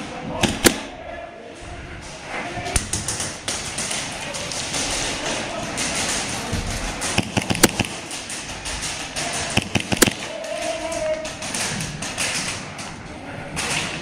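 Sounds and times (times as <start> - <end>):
din of players moving: 0.1 - 14.0
airsoft gunfire cracks: 0.4 - 0.9, 7.0 - 8.2, 9.2 - 10.4.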